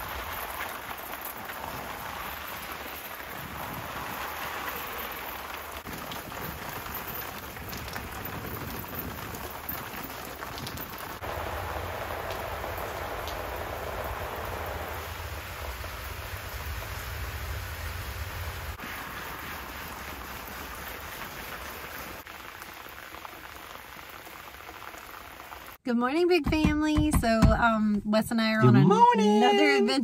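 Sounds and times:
hose nozzle spraying water on plants: 18.8s - 25.8s.

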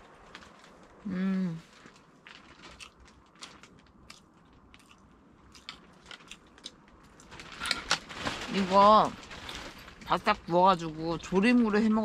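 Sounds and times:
person chewing food: 1.8s - 7.3s.

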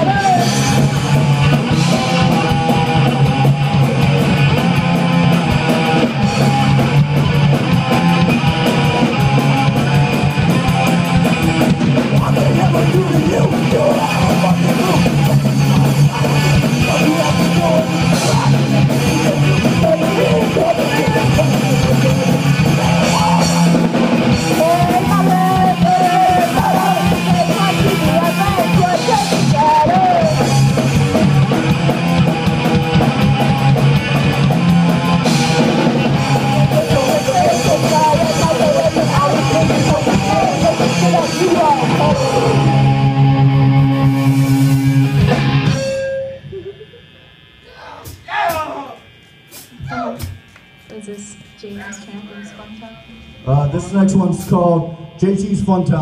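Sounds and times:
drums: 0.0s - 56.0s
electric guitar: 0.0s - 56.0s
person singing: 12.2s - 23.8s, 24.5s - 30.5s, 36.6s - 42.8s.

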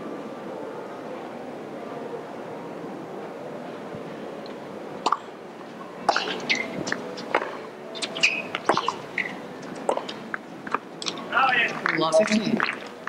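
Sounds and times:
crowd murmur: 0.0s - 13.0s
racket hitting tennis ball: 6.0s - 11.2s
shoes squeaking on court: 6.1s - 10.2s.

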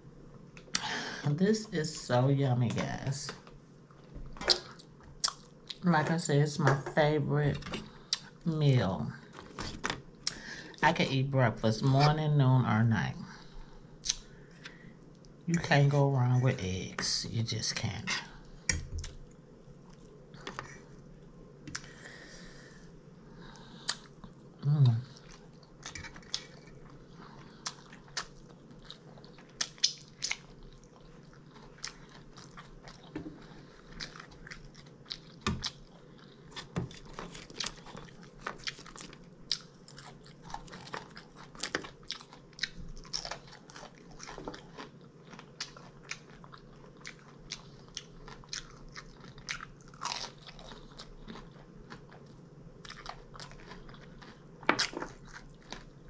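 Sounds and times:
crunchy chewing: 23.5s - 56.0s.

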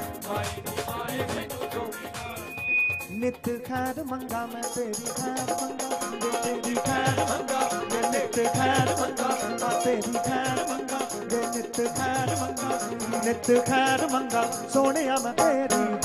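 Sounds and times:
percussion beat: 0.0s - 16.0s
wavering instrumental melody: 1.0s - 3.4s.

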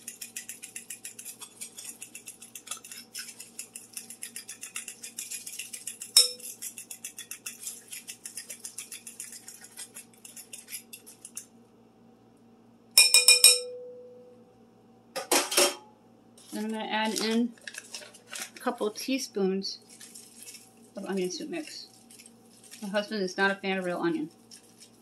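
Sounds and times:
fork beating eggs in glass bowl: 0.0s - 11.6s, 19.9s - 25.0s
fork clinking on bowl: 6.1s - 6.6s, 13.0s - 13.9s.

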